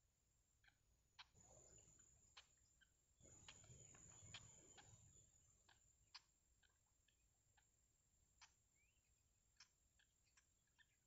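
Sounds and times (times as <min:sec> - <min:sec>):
faint irregular ticks: 0:02.3 - 0:11.0.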